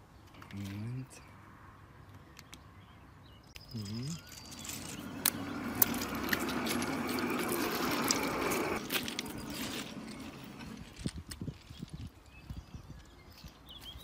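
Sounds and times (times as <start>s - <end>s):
trolley rolling on rails: 4.1s - 12.0s.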